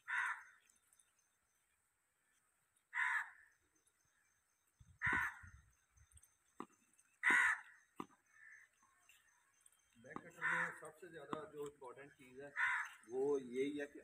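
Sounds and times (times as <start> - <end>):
crow cawing: 0.0 - 0.6, 2.9 - 3.5, 5.0 - 5.6, 7.2 - 8.7, 10.2 - 11.0, 12.5 - 13.1.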